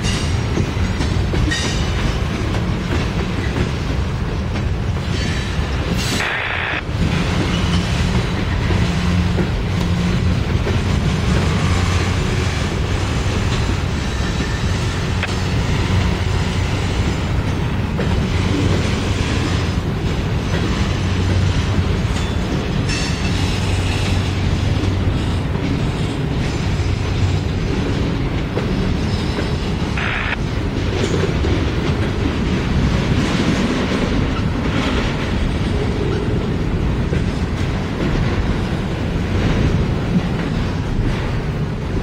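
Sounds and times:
train wheels rumbling on track: 0.0 - 42.0.

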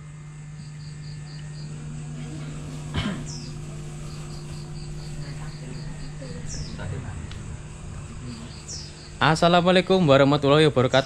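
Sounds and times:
crickets chirping: 0.0 - 11.0
steady low hum: 0.0 - 11.0.

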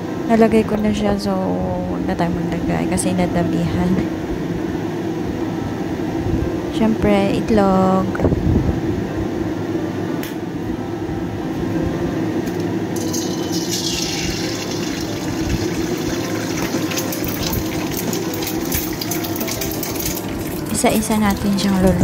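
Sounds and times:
steady background hum: 0.0 - 22.0
egg sizzling in hot oil: 13.0 - 22.0.

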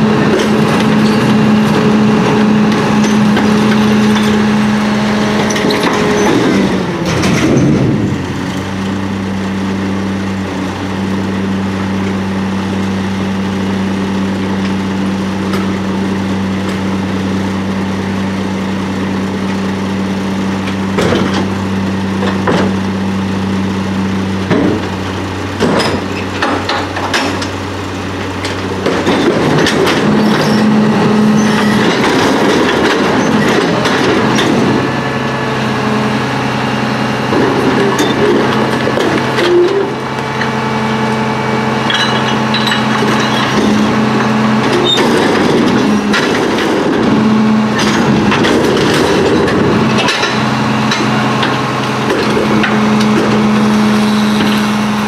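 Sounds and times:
garbage truck engine: 0.0 - 55.0
metal clanks and banging: 5.3 - 8.0, 20.6 - 21.6, 25.6 - 27.6, 28.2 - 34.8, 37.3 - 40.5, 41.8 - 53.6.

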